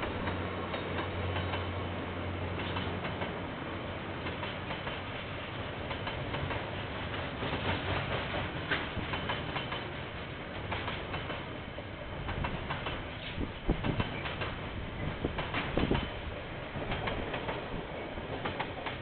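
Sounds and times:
wheel clicks on rail: 0.0 - 1.7, 5.8 - 11.5, 12.2 - 19.0
freight train rumbling past: 0.0 - 19.0.

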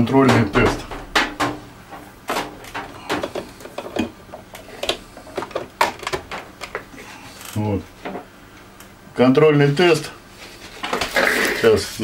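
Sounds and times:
microwave oven clicks and knocks: 0.0 - 6.7.

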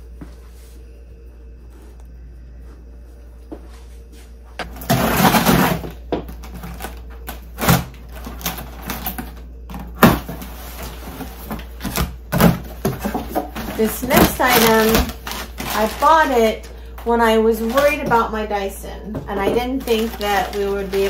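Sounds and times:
scissors cutting packing tape: 14.2 - 15.9.

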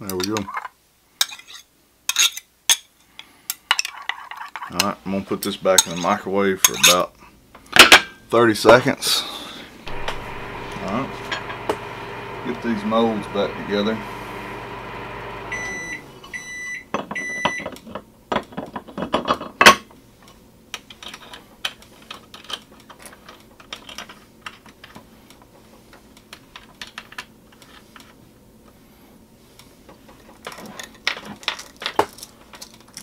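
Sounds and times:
microwave oven humming: 9.8 - 17.5
microwave beeps: 9.9 - 17.7.

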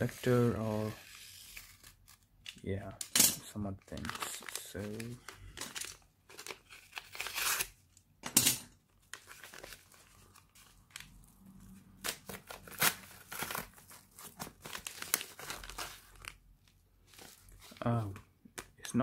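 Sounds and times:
paper envelope crumpling and ripping: 3.9 - 7.8, 9.0 - 18.2.

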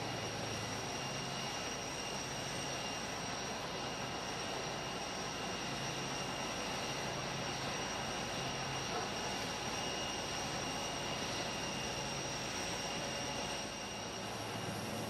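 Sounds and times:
jet engines roaring and whining: 0.0 - 15.0.

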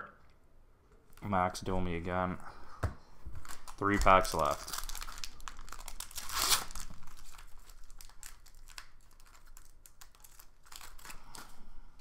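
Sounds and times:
foil wrapper crinkling and tearing: 3.4 - 11.6.

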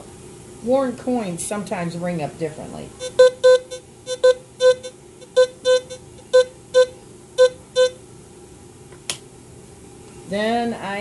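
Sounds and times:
metal detector beeping: 3.0 - 8.0.

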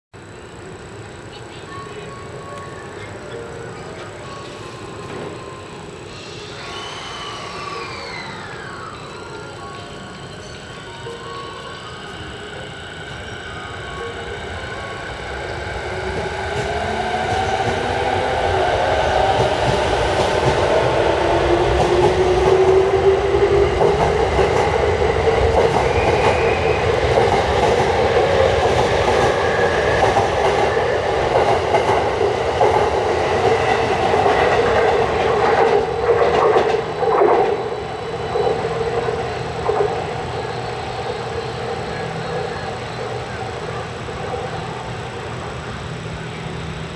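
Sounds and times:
electric train motor whine: 0.2 - 46.9.

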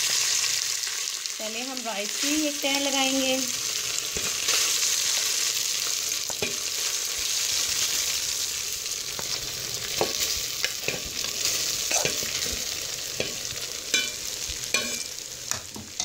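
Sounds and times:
oil sizzling in pot: 0.0 - 16.0
spoon knocking against metal pot: 13.2 - 16.0.

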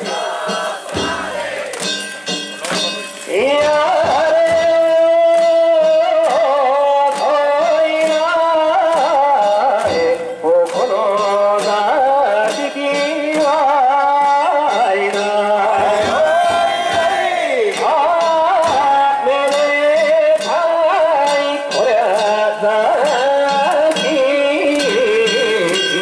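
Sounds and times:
percussion strikes: 0.0 - 26.0.

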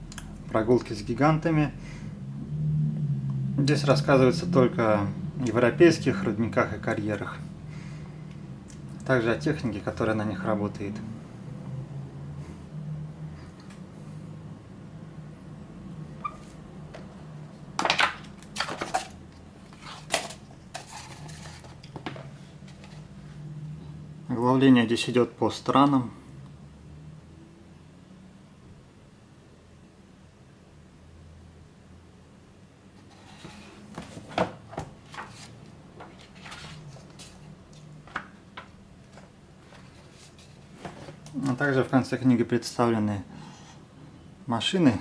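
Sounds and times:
book pages flipping: 17.8 - 23.1, 33.0 - 41.6.

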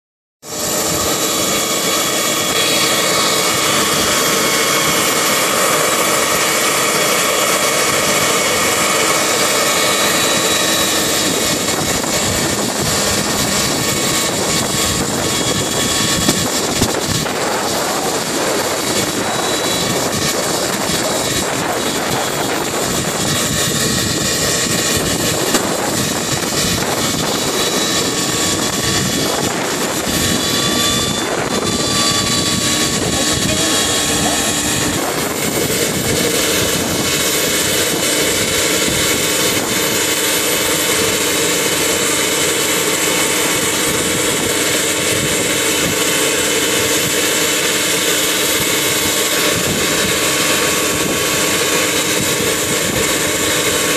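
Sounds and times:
high turbine whine: 0.4 - 53.9
rotor blades rushing: 0.4 - 53.9.

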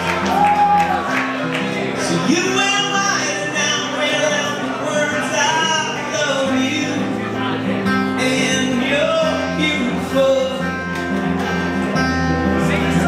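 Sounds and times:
acoustic guitar strumming: 0.0 - 13.0
man singing: 2.0 - 11.0, 12.3 - 13.0.

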